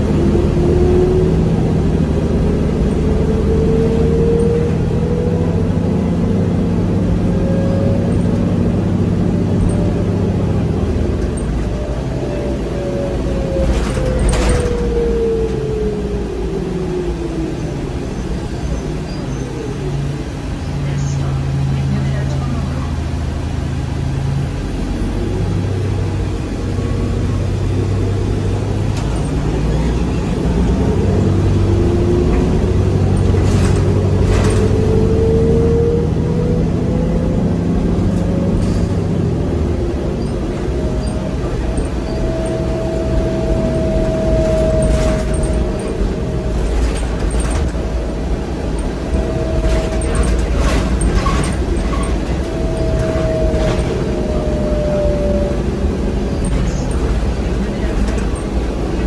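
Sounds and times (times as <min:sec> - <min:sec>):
diesel engine humming: 0:00.0 - 0:59.0
bus body rattles and knocks: 0:13.6 - 0:15.1, 0:27.8 - 0:36.2, 0:37.8 - 0:54.5, 0:55.6 - 0:59.0
hybrid drive whine rising: 0:26.7 - 0:59.0.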